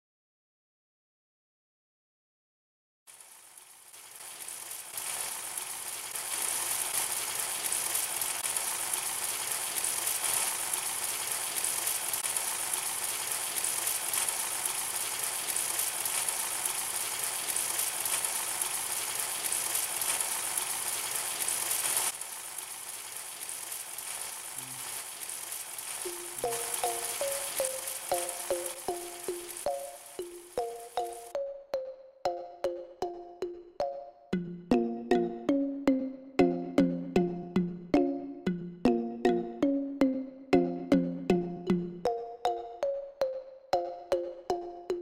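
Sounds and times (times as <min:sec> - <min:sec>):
patties sizzling in hot oil: 0:03.1 - 0:31.4.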